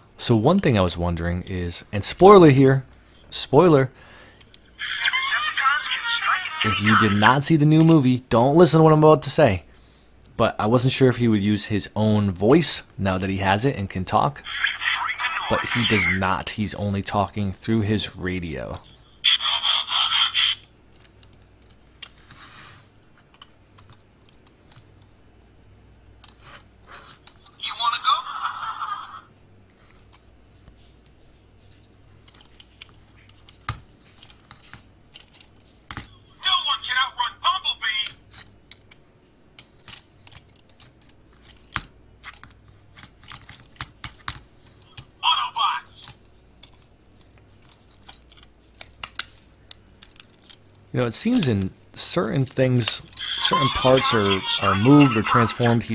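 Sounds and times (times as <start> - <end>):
plastic toy parts clicking: 32.2 - 36.1, 47.6 - 50.6
toy electronic sound clip: 53.2 - 55.9.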